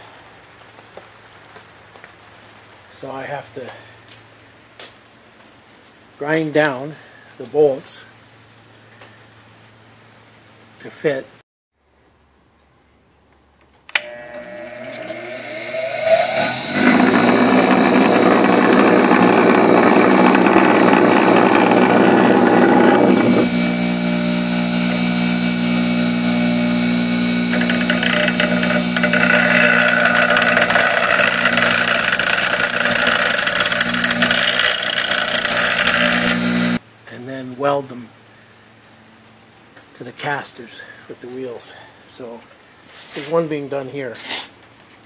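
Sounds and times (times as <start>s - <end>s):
bench grinder switch click: 13.9s - 15.2s
grinder motor whining: 14.0s - 36.8s
metal grinding on a wheel: 14.4s - 36.8s.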